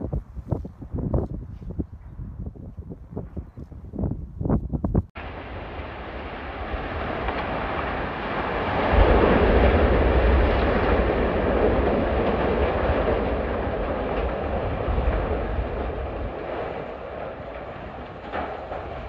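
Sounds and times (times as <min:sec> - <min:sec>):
heavy rumble of collapsing structure: 0:04.8 - 0:19.0.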